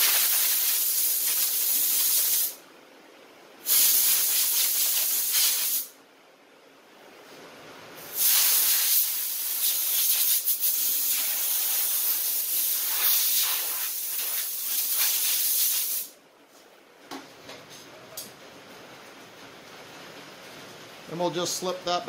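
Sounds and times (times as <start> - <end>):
compressed air gun hissing: 0.0 - 2.6, 3.7 - 5.9, 8.0 - 16.2.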